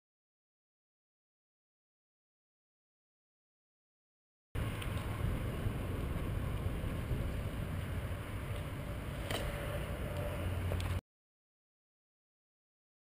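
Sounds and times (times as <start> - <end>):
bicycle tyre noise: 4.6 - 11.0
wind rumbling on microphone: 4.6 - 11.0.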